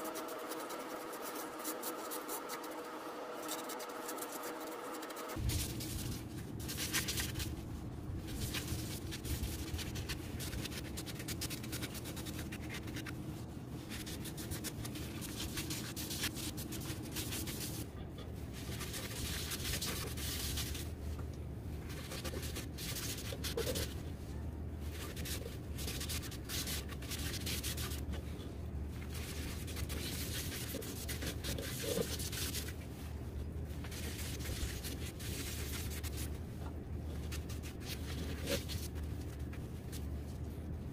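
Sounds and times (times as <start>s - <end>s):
sandpaper rasping on wood: 0.0s - 5.4s
lathe low hum: 0.0s - 6.6s.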